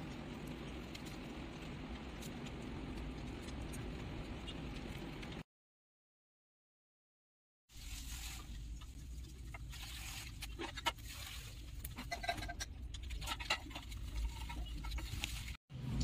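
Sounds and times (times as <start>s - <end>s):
husk crackling: 7.7s - 15.6s
paintbrush scratching on corn husk: 7.8s - 8.6s, 9.5s - 12.4s.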